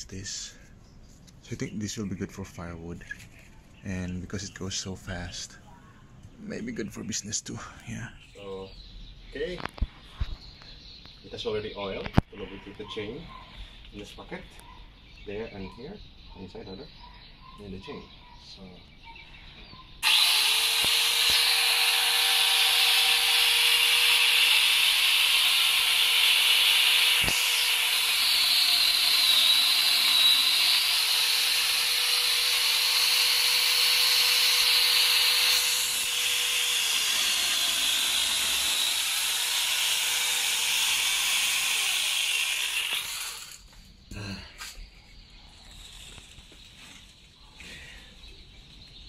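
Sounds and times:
power chainsaw cutting a tree trunk: 20.0s - 43.6s.

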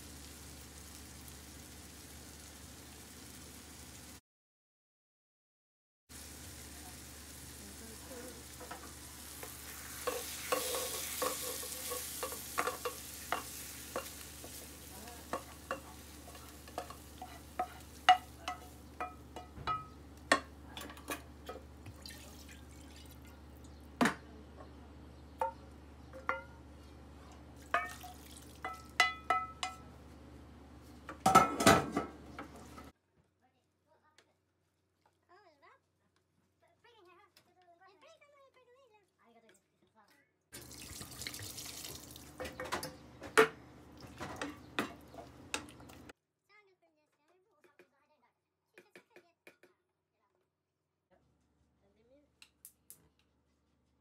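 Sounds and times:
hissing sizzle: 0.0s - 4.2s, 6.1s - 20.4s
spoon scraping a frying pan: 8.4s - 21.6s
wooden spoon stirring a pot: 8.4s - 21.6s.

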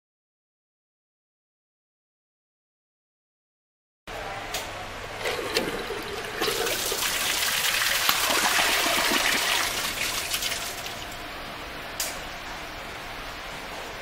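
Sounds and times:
toilet water rushing: 5.2s - 11.1s.

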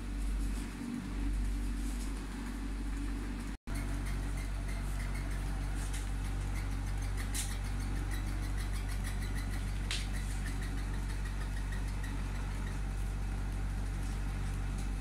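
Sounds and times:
electric motor hum: 0.0s - 15.0s.

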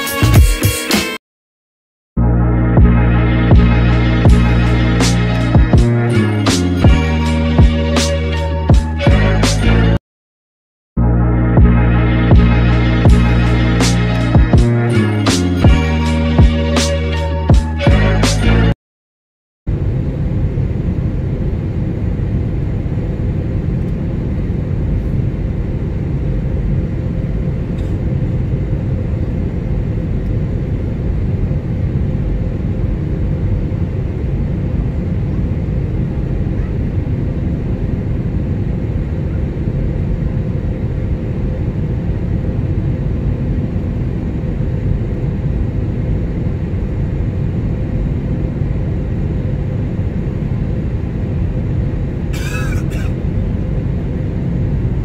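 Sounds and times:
airliner cabin engine rumble: 19.7s - 55.0s.

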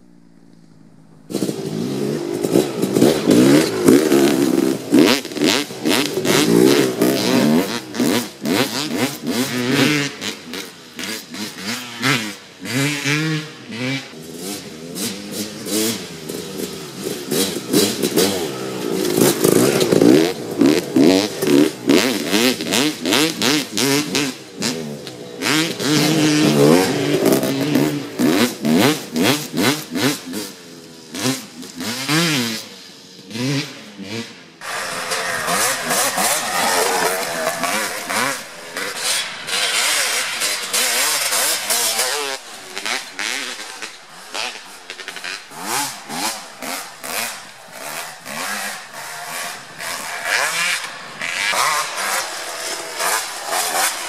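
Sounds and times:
dirt bike engines revving: 0.0s - 54.0s.

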